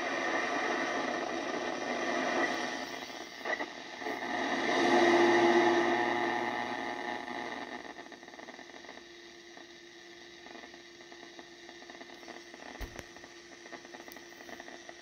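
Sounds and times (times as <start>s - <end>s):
radio static hiss: 0.0s - 15.0s.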